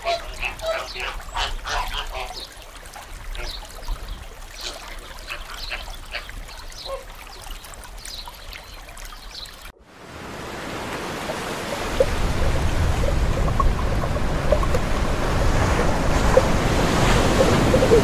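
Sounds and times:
trickling water: 0:00.0 - 0:18.0
sea wash rushing: 0:09.8 - 0:18.0
flamingo flock calling: 0:16.3 - 0:18.0.

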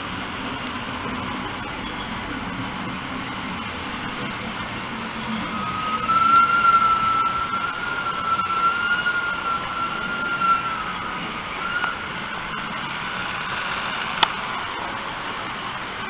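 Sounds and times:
model train motor whine: 0:00.0 - 0:16.0
train rolling hiss: 0:00.0 - 0:16.0.

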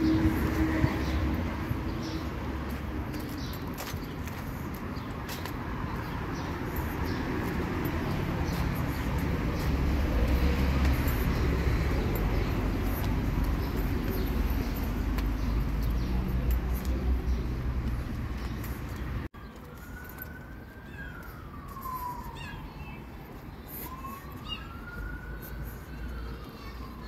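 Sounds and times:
hum of passing vehicles: 0:00.0 - 0:19.4.

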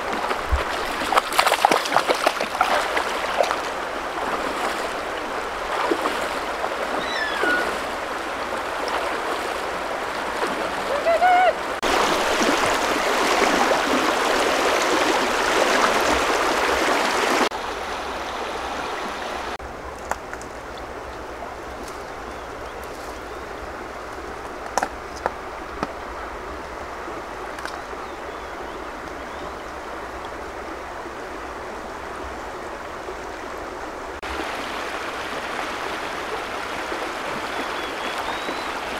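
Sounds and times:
river rushing over rocks: 0:00.0 - 0:19.9, 0:29.8 - 0:38.9.

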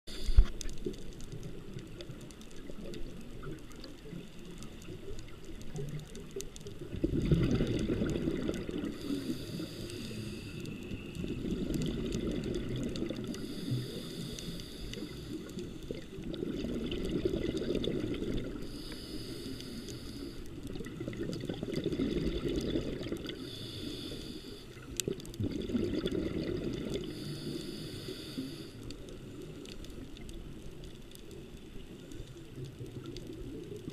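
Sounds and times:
regulator hissing inhale: 0:00.1 - 0:00.7, 0:08.8 - 0:11.1, 0:13.2 - 0:16.1, 0:18.5 - 0:20.6, 0:23.3 - 0:24.9, 0:27.0 - 0:29.0
exhaled bubbles rushing: 0:06.8 - 0:09.1, 0:11.1 - 0:13.4, 0:15.5 - 0:18.7, 0:20.6 - 0:23.4, 0:25.1 - 0:27.1.

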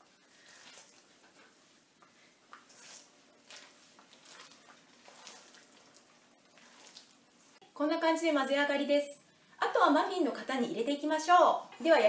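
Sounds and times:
spatula folding batter in bowl: 0:00.0 - 0:07.6.

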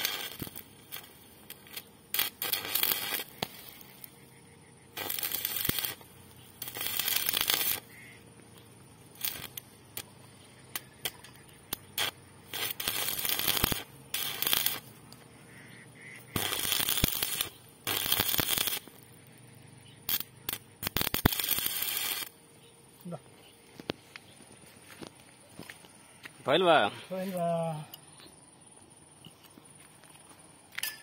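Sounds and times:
welding arc crackling: 0:00.0 - 0:19.4, 0:20.0 - 0:22.4.

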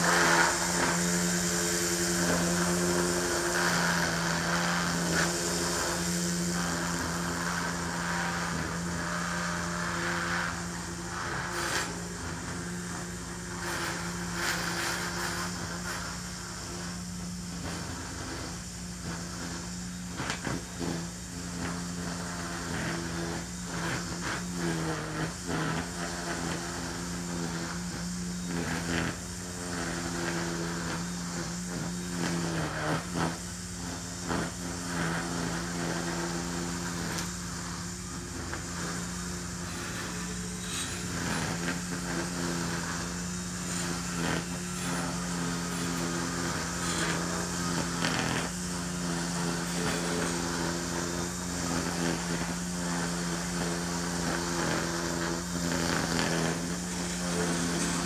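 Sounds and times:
string trimmer running: 0:00.0 - 0:58.0
grass ticking against trimmer line: 0:17.6 - 0:58.0.

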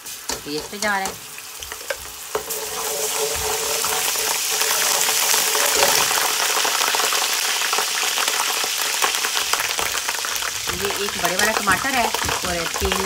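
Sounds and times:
metal spoon stirring in pot: 0:00.0 - 0:06.4
paste sizzling in hot oil: 0:00.0 - 0:13.0.

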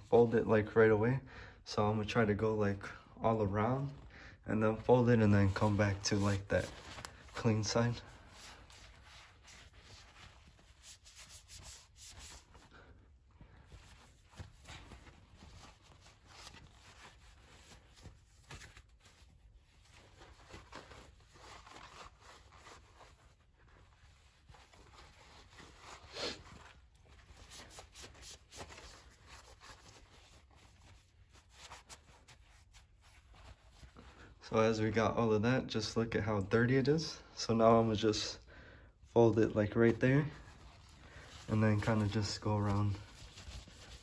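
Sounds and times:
cloth rubbing on car wheel: 0:04.6 - 0:12.7, 0:13.6 - 0:34.0, 0:39.9 - 0:44.0.

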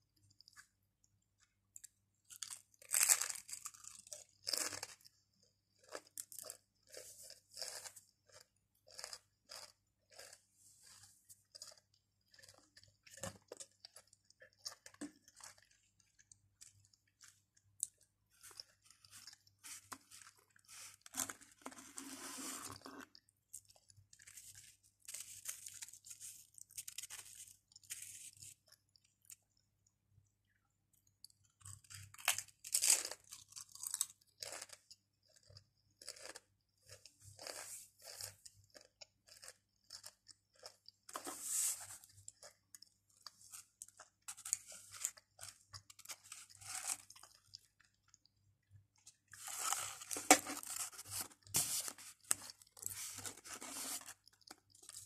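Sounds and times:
crunching and chewing crisps: 0:01.4 - 0:29.6, 0:30.5 - 0:55.0.

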